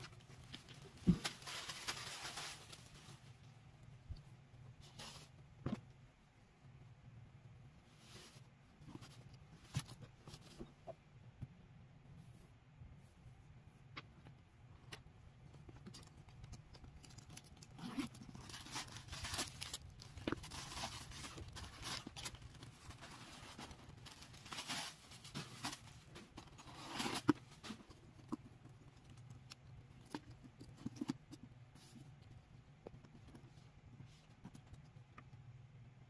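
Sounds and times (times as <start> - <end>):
paper stuffing crinkling and rustling: 0.0 - 3.4, 15.6 - 32.0.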